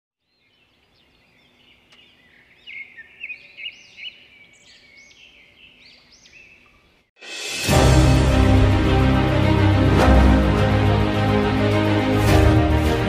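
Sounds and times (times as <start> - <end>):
birds chirping and whistling: 0.3 - 7.0.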